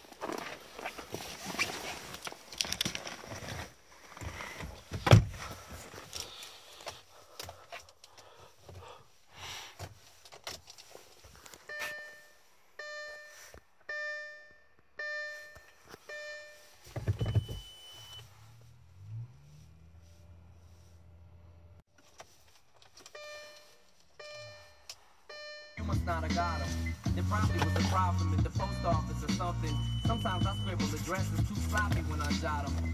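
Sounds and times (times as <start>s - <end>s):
rustling: 0.0s - 9.0s
dashboard chime: 11.7s - 16.7s, 23.2s - 31.1s.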